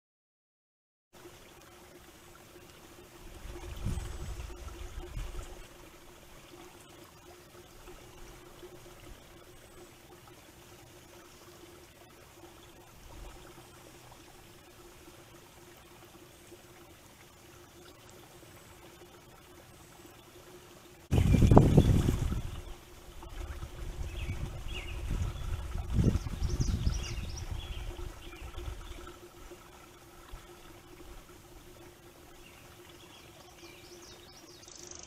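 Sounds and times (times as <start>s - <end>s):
faint steady hum: 1.2s - 35.0s
hiss of wind and water: 1.2s - 35.0s
wind buffeting microphone: 3.3s - 5.6s, 21.1s - 29.0s.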